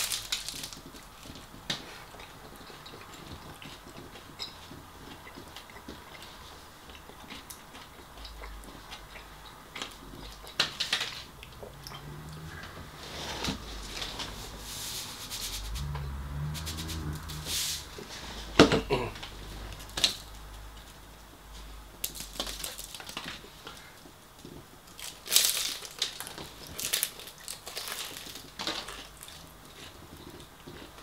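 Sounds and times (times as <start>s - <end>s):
paper wrapping rustling: 0.0s - 0.9s.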